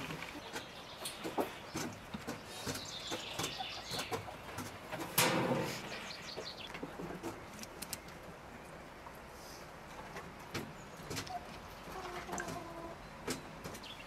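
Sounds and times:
birds calling: 0:00.0 - 0:09.2, 0:10.3 - 0:14.0
brush tapping metal pan: 0:04.1 - 0:05.8.

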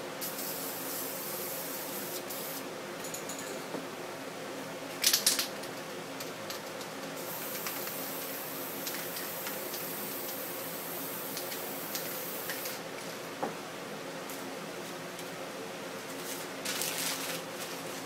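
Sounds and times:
spray paint can hissing: 0:00.2 - 0:02.6, 0:07.3 - 0:12.8.

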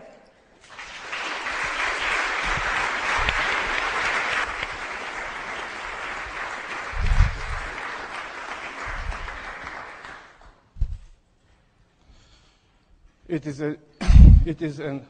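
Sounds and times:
audience applauding: 0:00.6 - 0:10.7
dull low thump: 0:14.0 - 0:14.5.

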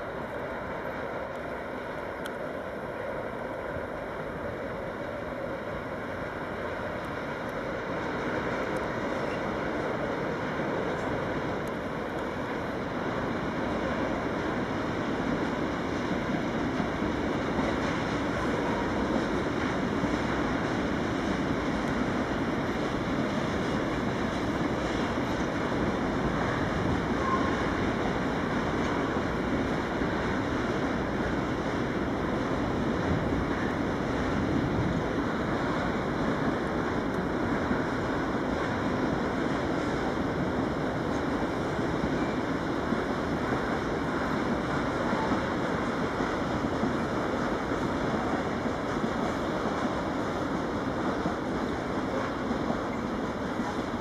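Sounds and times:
diesel locomotive rumbling past: 0:00.0 - 0:54.0
wind noise on microphone: 0:08.2 - 0:54.0
faint train squeal: 0:08.9 - 0:11.2, 0:26.3 - 0:29.2, 0:41.1 - 0:45.6, 0:52.0 - 0:53.9.

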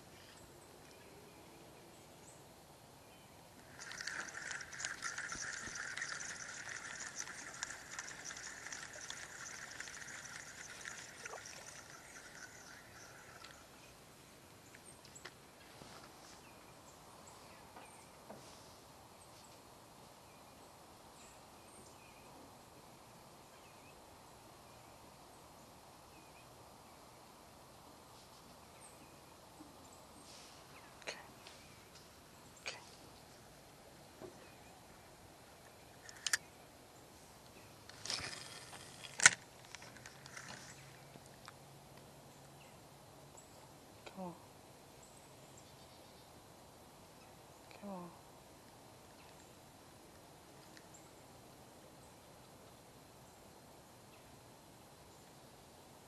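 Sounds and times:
faint ticks: 0:03.6 - 0:13.9
fishing reel cranking whir: 0:03.7 - 0:13.8.

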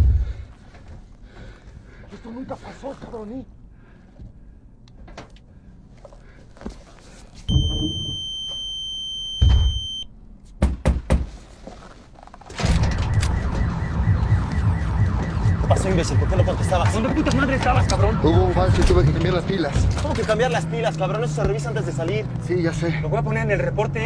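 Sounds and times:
high-pitched electronic alarm beep: 0:07.5 - 0:10.1
thump: 0:09.4 - 0:09.8.

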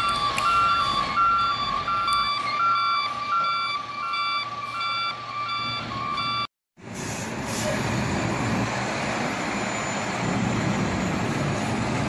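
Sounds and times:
reversing alarm beeping: 0:00.0 - 0:06.5.

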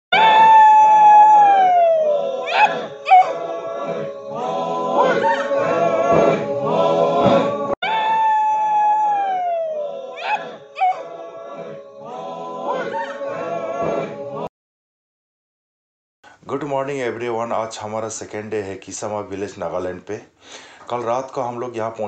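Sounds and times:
long high falling call: 0:00.1 - 0:06.0, 0:07.8 - 0:13.2
men chanting: 0:01.4 - 0:07.8, 0:09.2 - 0:14.5.

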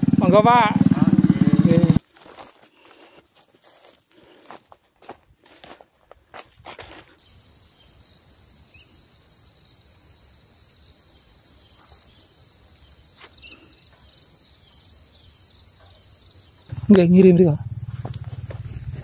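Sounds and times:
cicadas chorus: 0:00.0 - 0:02.0, 0:07.2 - 0:19.0.

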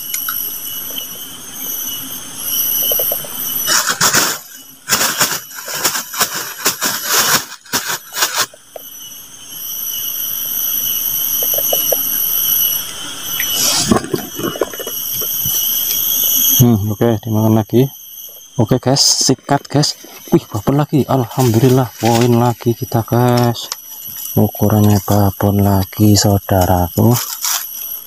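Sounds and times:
insects droning: 0:00.0 - 0:28.0
rustling and handling noise: 0:02.8 - 0:08.9, 0:19.3 - 0:25.4, 0:27.0 - 0:28.0.

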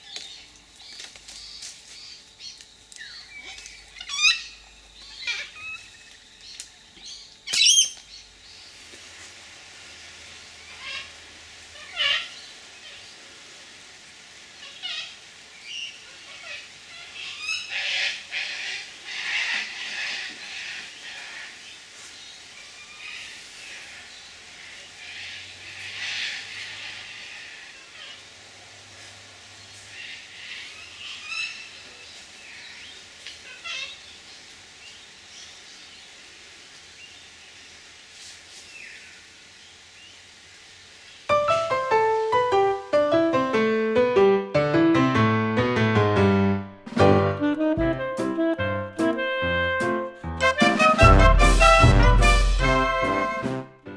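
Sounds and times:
distant bird calls: 0:03.0 - 0:08.8
cockatoos squawking: 0:03.4 - 0:06.0
solo piano music: 0:41.3 - 0:53.9.

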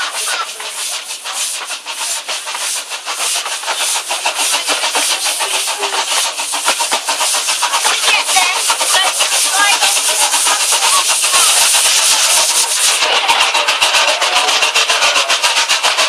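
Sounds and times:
steam locomotive hissing: 0:00.0 - 0:16.0
steam locomotive puffing: 0:00.0 - 0:16.0.

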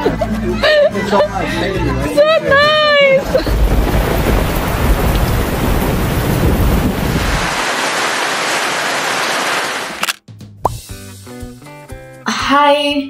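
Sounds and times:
heavy rain pouring: 0:03.2 - 0:10.2.

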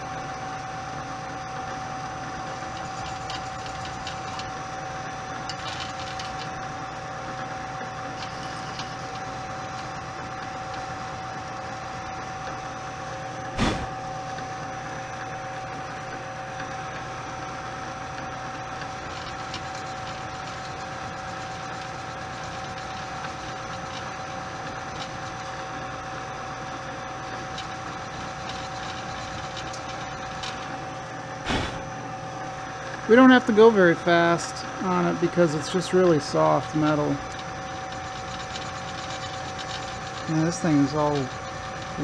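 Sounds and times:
milling spindle whine: 0:00.0 - 0:14.0, 0:15.2 - 0:32.1, 0:32.9 - 0:42.0
sharp knock: 0:13.6 - 0:14.0, 0:31.4 - 0:31.9.

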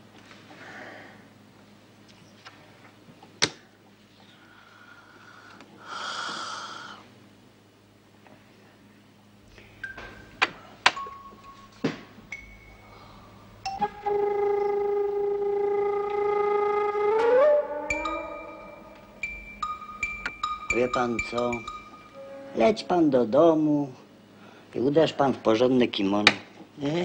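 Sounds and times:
loud held music chord: 0:11.1 - 0:24.0.

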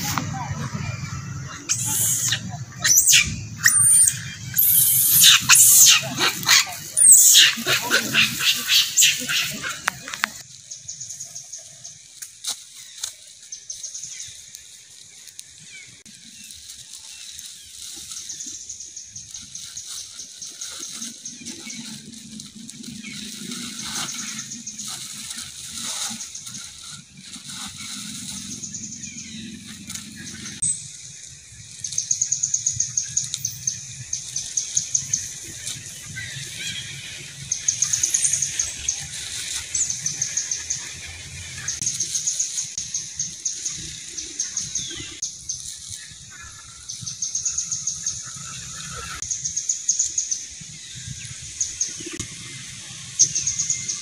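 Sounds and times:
monkey squealing: 0:01.6 - 0:10.4.

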